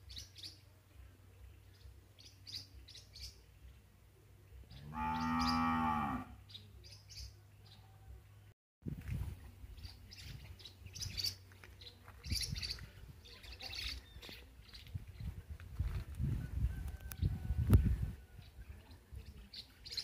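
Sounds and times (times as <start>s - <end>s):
small birds chirping: 0.0s - 5.8s, 9.2s - 15.9s, 18.2s - 20.0s
cow mooing: 4.8s - 6.4s.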